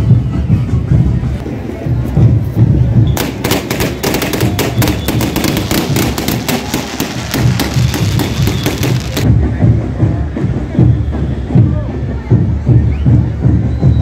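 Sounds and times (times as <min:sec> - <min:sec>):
firework cracks and bangs: 0:03.1 - 0:09.3.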